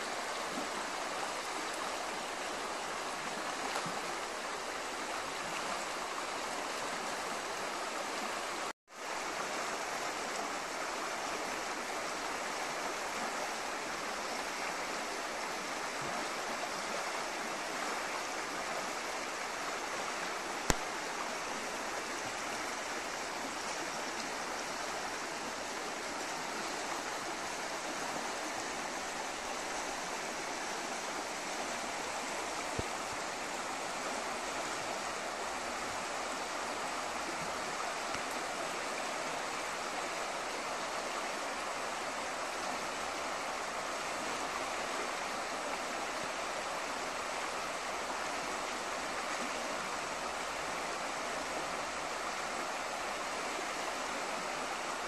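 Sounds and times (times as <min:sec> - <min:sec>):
river rapids rushing: 0:00.0 - 0:55.0
sharp click: 0:20.7 - 0:20.9.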